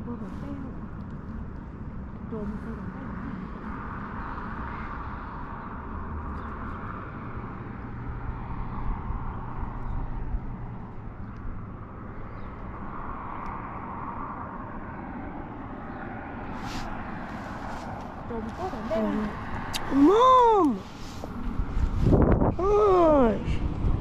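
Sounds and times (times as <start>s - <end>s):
wind buffeting microphone: 8.1s - 24.0s.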